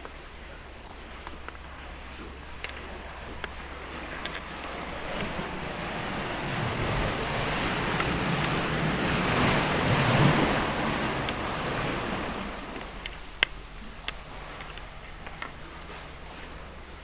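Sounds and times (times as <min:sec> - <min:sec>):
surf rushing into sea cave: 0:00.0 - 0:17.0.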